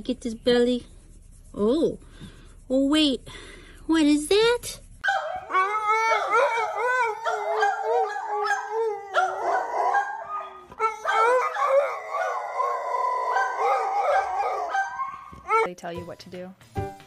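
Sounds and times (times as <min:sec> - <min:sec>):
dog howling: 0:05.0 - 0:15.7.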